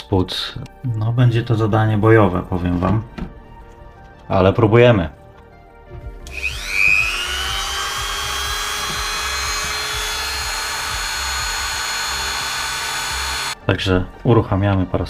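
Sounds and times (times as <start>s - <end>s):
rotary tool high-pitched whine: 6.3s - 13.6s.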